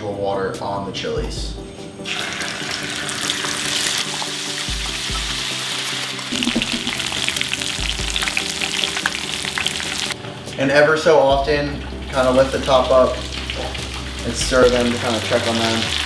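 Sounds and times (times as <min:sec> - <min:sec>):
chilies frying in oil: 0:02.1 - 0:10.2, 0:11.8 - 0:16.0.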